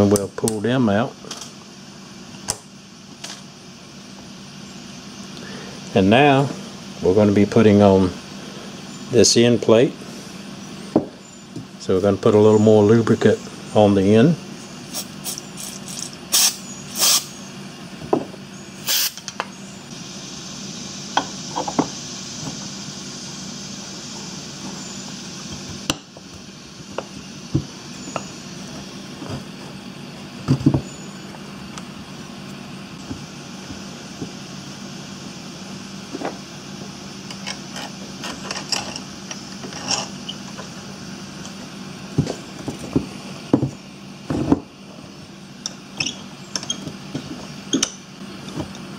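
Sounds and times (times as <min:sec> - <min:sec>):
steady hum: 0:00.0 - 0:48.9.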